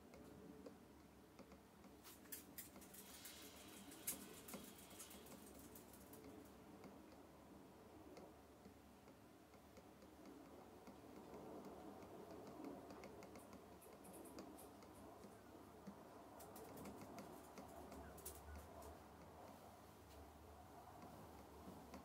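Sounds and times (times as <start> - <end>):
low room hum: 0.0 - 22.0.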